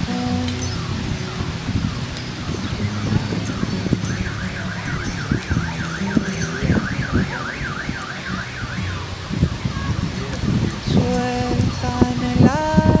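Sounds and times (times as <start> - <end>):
low background murmur: 0.1 - 12.3
warbling siren-like alarm tone: 0.7 - 9.8.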